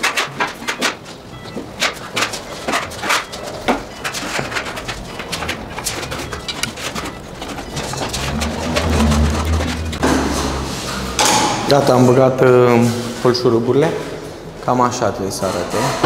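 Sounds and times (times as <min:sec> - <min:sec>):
trowel scraping on panel: 0:02.4 - 0:11.0.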